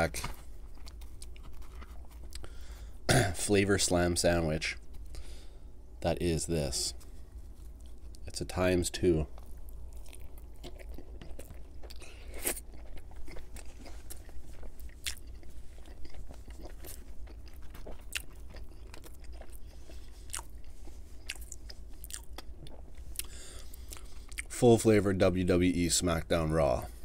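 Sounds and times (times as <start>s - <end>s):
crackly crust clicks: 0.0s - 2.9s
biting and chewing pizza: 0.0s - 5.5s, 6.9s - 24.6s.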